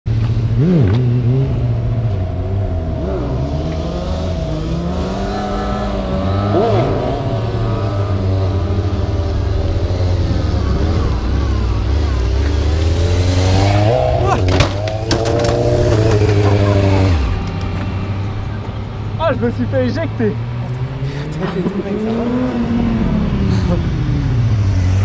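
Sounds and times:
motorcycle engine running: 0:00.1 - 0:19.5
motorcycle engine rev blips: 0:00.3 - 0:18.8.

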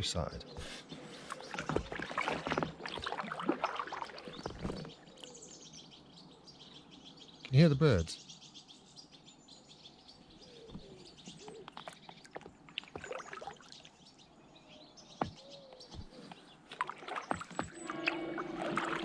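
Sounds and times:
faint birdsong: 0:00.0 - 0:19.0
paddle strokes splashing water: 0:00.6 - 0:05.2, 0:12.1 - 0:13.9, 0:16.0 - 0:19.0.

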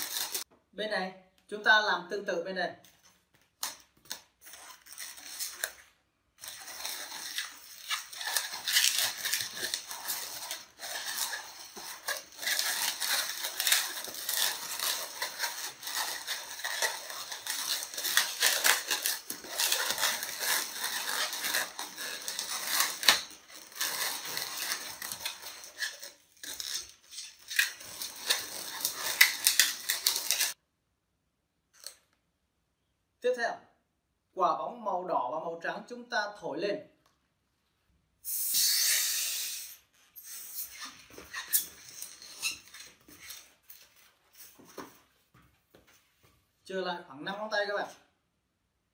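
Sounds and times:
balloons squeaking while twisted: 0:00.0 - 0:00.5, 0:03.6 - 0:30.6, 0:38.3 - 0:45.1.

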